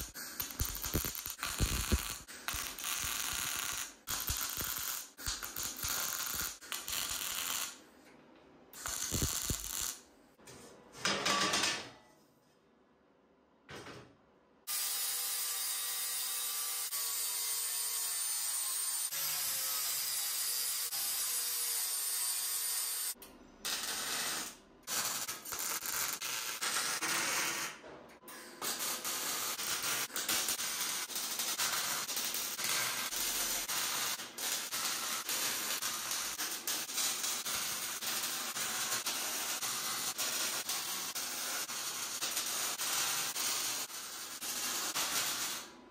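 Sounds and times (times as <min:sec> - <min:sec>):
welding arc crackling: 0:00.0 - 0:07.8, 0:08.8 - 0:10.0, 0:23.7 - 0:27.7, 0:28.6 - 0:45.7.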